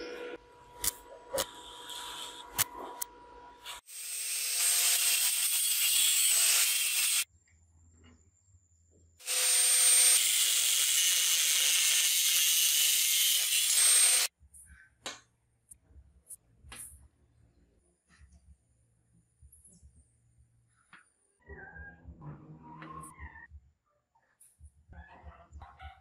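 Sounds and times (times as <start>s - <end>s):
power grinder grinding steel: 3.7s - 7.3s, 9.2s - 14.3s.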